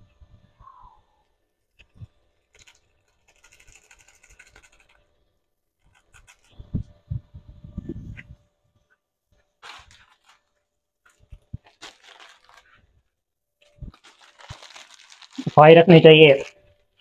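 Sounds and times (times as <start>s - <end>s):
seasoning sachet rustling: 9.6s - 12.9s, 13.7s - 17.0s.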